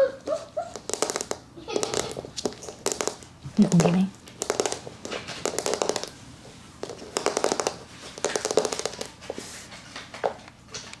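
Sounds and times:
puppy chewing toy: 0:00.2 - 0:06.2, 0:06.8 - 0:09.2
teeth clicking on toy: 0:00.8 - 0:02.2, 0:04.4 - 0:06.1.

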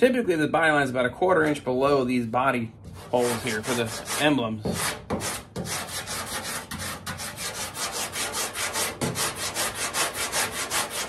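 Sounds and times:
sanding block rubbing filler: 0:03.0 - 0:11.0.

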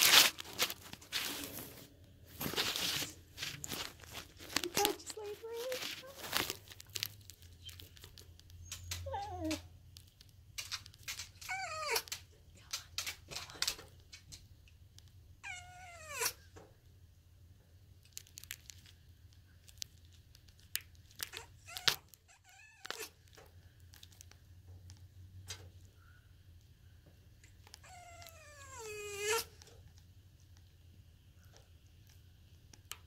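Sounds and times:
light clicks and rustles: 0:00.1 - 0:15.1.

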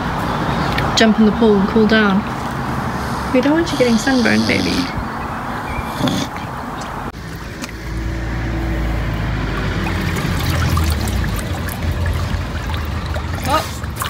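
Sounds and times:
water splashing and dripping: 0:06.8 - 0:14.0.

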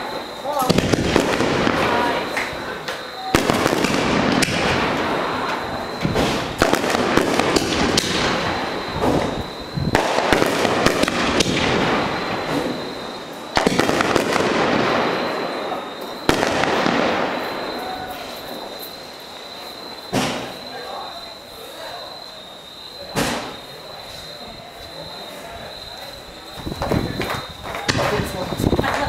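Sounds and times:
firework bangs: 0:00.0 - 0:29.0
firework crackling: 0:00.0 - 0:29.0.

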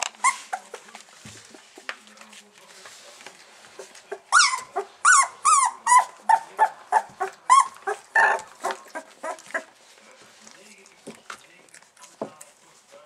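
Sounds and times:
puppies whining and yelping: 0:00.2 - 0:00.8, 0:03.8 - 0:09.7.

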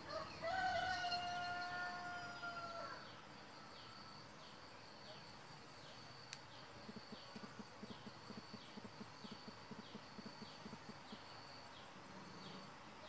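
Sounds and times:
high insect drone: 0:00.0 - 0:13.0.

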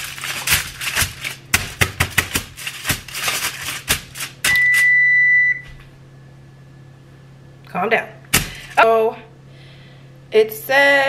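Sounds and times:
aluminum foil crinkling: 0:00.0 - 0:04.5
high electronic beep: 0:04.5 - 0:05.7.

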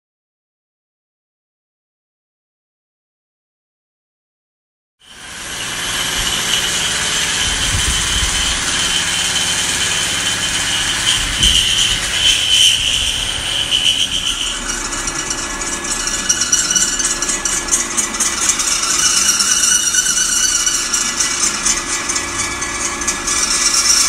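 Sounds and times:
drill press whine: 0:05.0 - 0:24.0
drill bit chattering in steel: 0:05.1 - 0:24.0.

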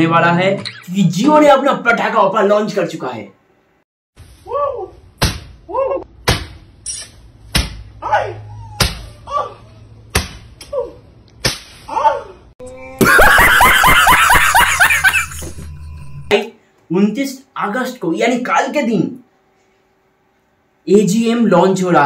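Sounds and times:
sharp smacks: 0:05.2 - 0:05.6, 0:06.2 - 0:07.9, 0:08.8 - 0:09.0, 0:10.1 - 0:10.8, 0:11.4 - 0:11.9
yelping cries: 0:08.0 - 0:10.0
hysterical laughter: 0:12.9 - 0:16.3.

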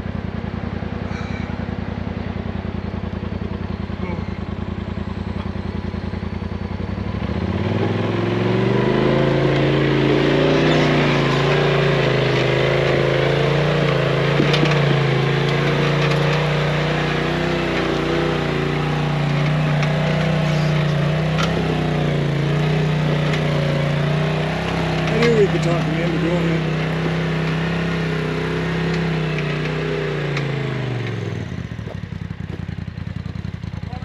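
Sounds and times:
off-road vehicle engine revving: 0:00.0 - 0:34.0
sharp knocks: 0:13.6 - 0:18.3.

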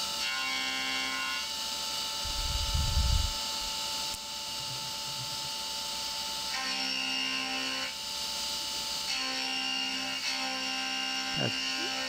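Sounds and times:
milling machine whine: 0:00.0 - 0:12.0
low rumble: 0:02.3 - 0:03.4.

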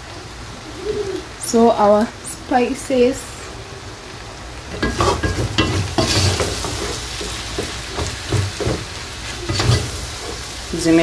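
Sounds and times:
meat sizzling in a pot: 0:00.0 - 0:11.0
wooden spoon scraping a pot: 0:04.9 - 0:10.6.

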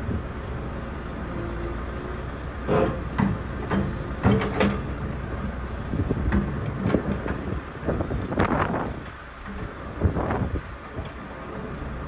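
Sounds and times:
excavator diesel engine running: 0:00.0 - 0:12.0
metallic clanks and knocks: 0:02.6 - 0:08.7.

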